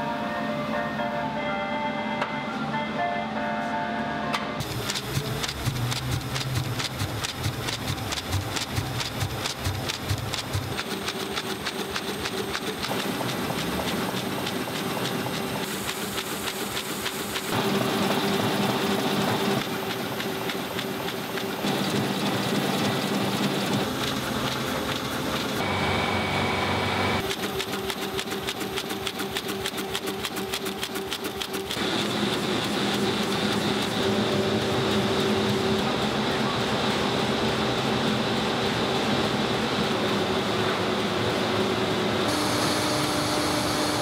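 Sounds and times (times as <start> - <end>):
printing press clattering: 4.6 - 26.0.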